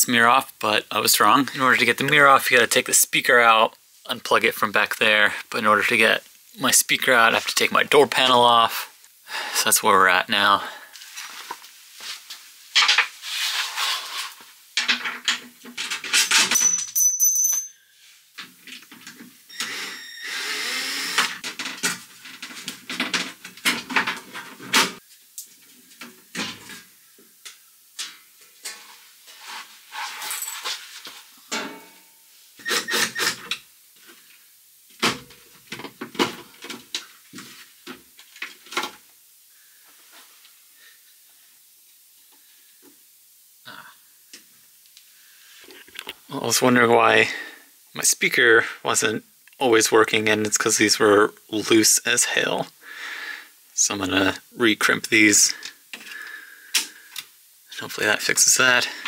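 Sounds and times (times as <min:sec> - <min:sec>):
short high squeak: 0:19.5 - 0:20.4.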